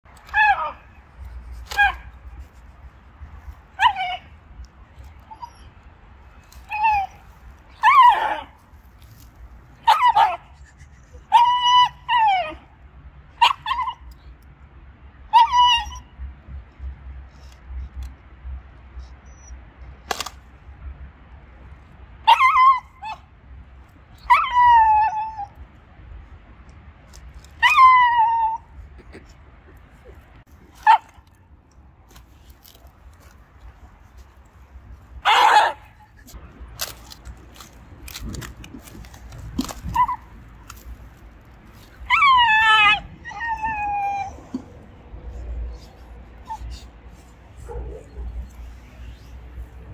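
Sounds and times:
dog whining: 0:05.2 - 0:05.7, 0:42.0 - 0:49.3.

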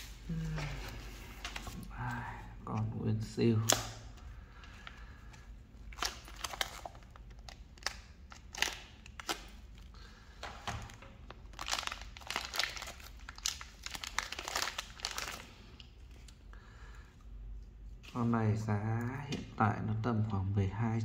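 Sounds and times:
plastic bag crinkling: 0:04.6 - 0:16.2.

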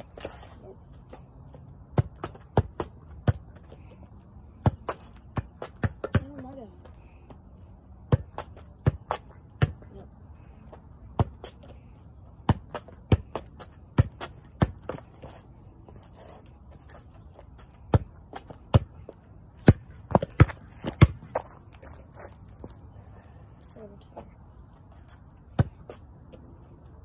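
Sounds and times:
ball bouncing on concrete: 0:00.0 - 0:04.0, 0:04.6 - 0:07.4, 0:08.0 - 0:10.0, 0:10.7 - 0:11.8, 0:12.4 - 0:16.0, 0:17.4 - 0:22.0, 0:25.5 - 0:26.4
soccer ball thumping off a foot: 0:19.6 - 0:21.5.

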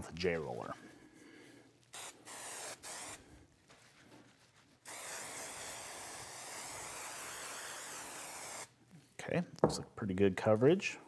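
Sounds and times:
aerosol can spraying: 0:01.9 - 0:03.2, 0:04.8 - 0:08.7.

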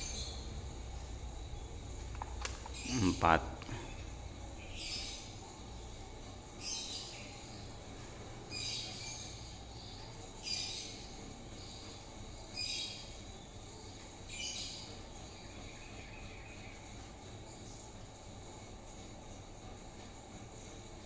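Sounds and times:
ceiling fan motor hum: 0:00.0 - 0:21.0.

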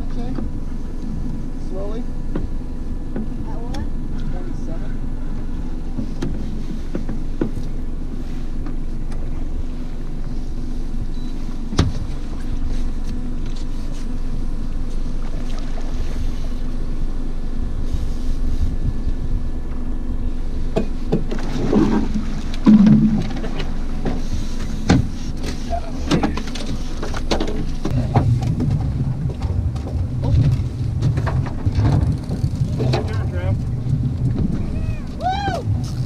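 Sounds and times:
outboard motor running: 0:00.0 - 0:36.0
wind: 0:00.0 - 0:36.0
water noise: 0:14.0 - 0:36.0.

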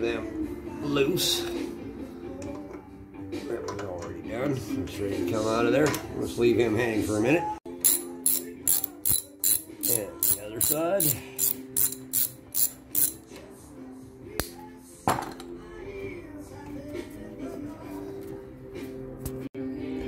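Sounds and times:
socket ratchet clicking: 0:07.8 - 0:13.2.

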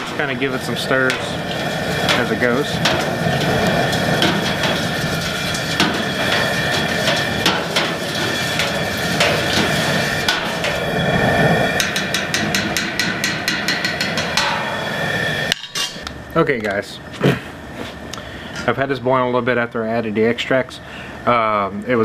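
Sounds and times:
gas burner rushing: 0:00.0 - 0:18.9
metal spoon knocking kettle sides: 0:11.8 - 0:14.6.

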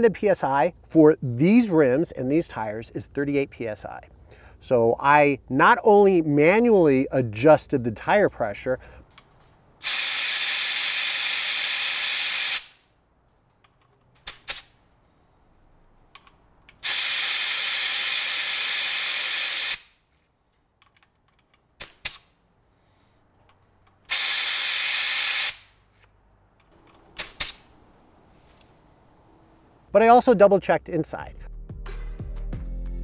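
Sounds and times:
air hissing through hose chuck: 0:09.8 - 0:12.8, 0:16.7 - 0:20.3, 0:23.9 - 0:26.1.

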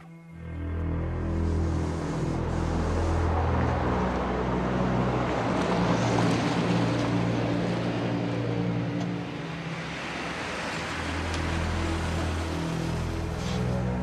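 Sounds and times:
road noise: 0:00.0 - 0:14.0
car engines driving in traffic: 0:00.8 - 0:14.0.

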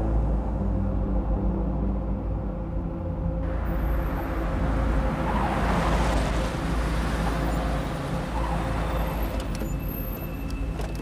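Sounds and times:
car engines running: 0:03.4 - 0:11.0
tyres rolling on road: 0:03.5 - 0:11.0.

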